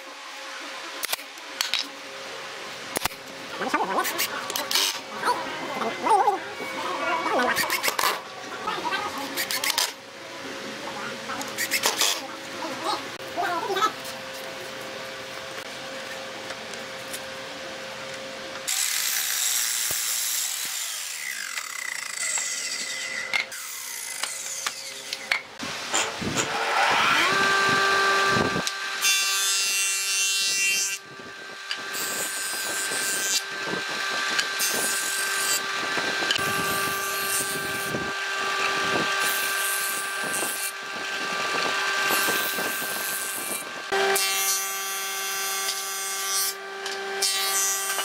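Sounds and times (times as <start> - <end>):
miter saw cutting board: 2.9 - 10.0, 11.3 - 13.0, 18.1 - 48.0
jointer motor whining: 19.9 - 45.9, 46.5 - 48.0
board fed across jointer cutterhead: 25.9 - 48.0.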